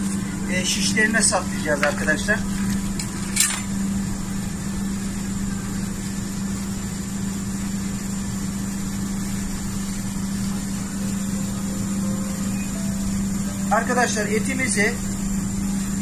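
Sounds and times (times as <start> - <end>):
deep ship engine hum: 9.0 - 16.0.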